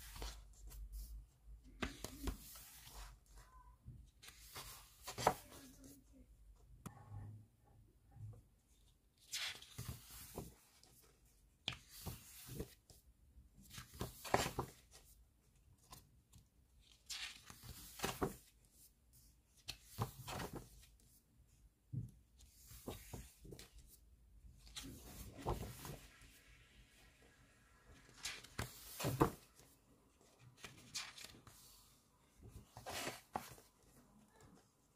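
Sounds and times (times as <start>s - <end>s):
book pages turning: 0.0s - 1.1s, 1.7s - 3.2s, 4.2s - 5.9s, 9.2s - 12.9s, 13.7s - 15.1s, 16.8s - 18.6s, 19.6s - 21.0s, 22.4s - 23.7s, 24.6s - 26.2s, 28.0s - 31.8s, 32.4s - 34.5s.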